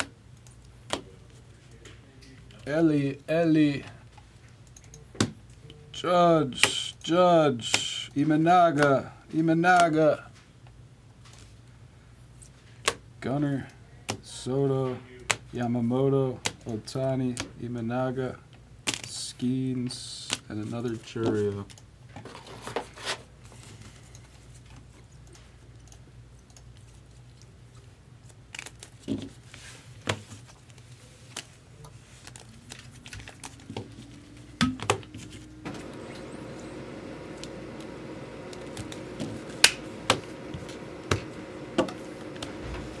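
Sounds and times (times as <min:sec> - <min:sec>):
rising hum: 0:33.2 - 0:43.0.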